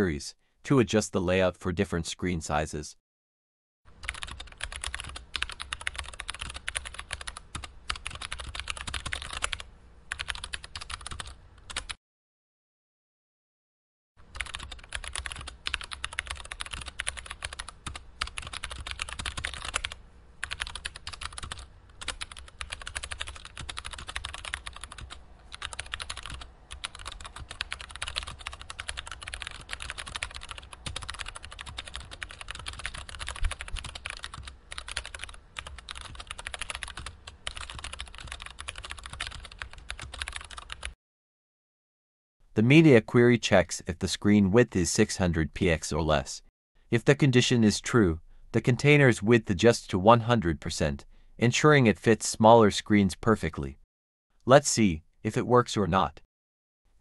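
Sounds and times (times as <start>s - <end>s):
typing on computer keyboard: 4.0s - 12.0s, 14.3s - 41.0s.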